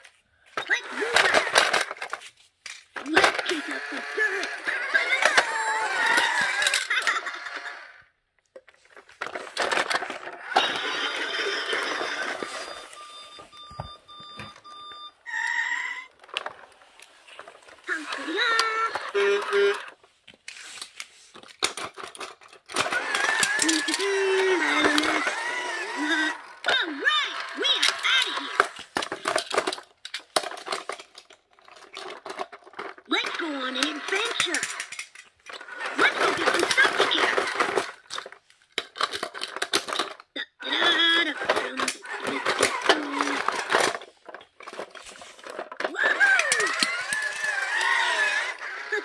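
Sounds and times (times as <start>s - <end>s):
toy truck rolling on foam mats: 0.1s - 49.0s
high sliding voice: 0.6s - 1.8s, 3.0s - 8.0s, 17.8s - 20.0s, 23.0s - 28.8s, 33.1s - 35.0s, 35.7s - 37.9s, 40.4s - 43.8s, 45.2s - 49.0s
toy truck knocks and rattles: 0.6s - 12.9s, 13.6s - 20.1s, 20.8s - 49.0s.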